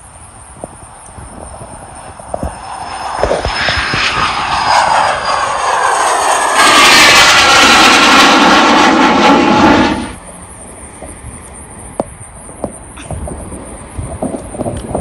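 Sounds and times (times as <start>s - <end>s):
faint rumble: 0.0s - 15.0s
jet passing overhead: 0.3s - 10.2s.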